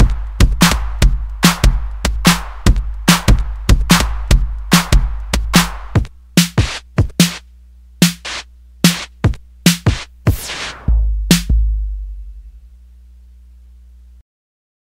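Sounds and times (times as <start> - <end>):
low bass: 0.0 - 5.9, 10.7 - 13.0
hip-hop drum machine beat: 0.0 - 12.5.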